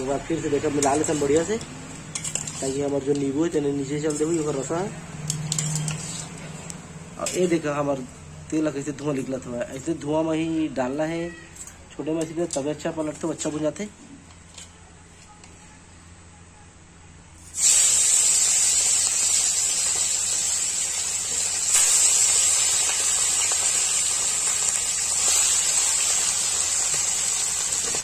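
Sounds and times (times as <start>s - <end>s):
fish sizzling in hot oil: 0.0s - 6.5s, 17.5s - 28.0s.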